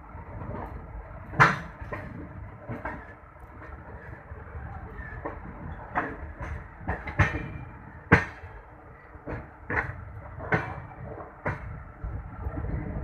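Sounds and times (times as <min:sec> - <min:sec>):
low rolling train rumble: 0:00.0 - 0:13.0
train wheels clanking over rail joints: 0:00.2 - 0:13.0.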